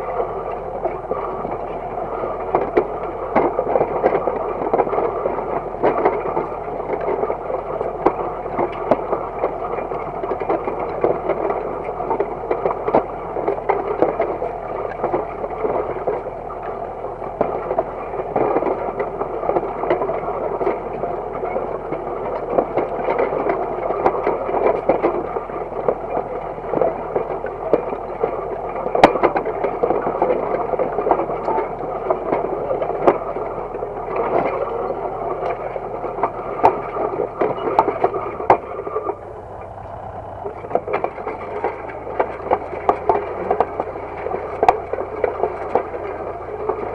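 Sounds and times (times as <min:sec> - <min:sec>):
disc harrow grinding clatter: 0:00.0 - 0:46.9
tractor engine running: 0:00.0 - 0:46.9.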